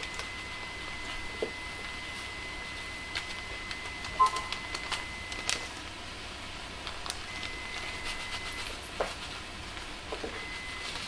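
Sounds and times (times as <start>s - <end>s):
faint steady high tone: 1.4s - 5.3s.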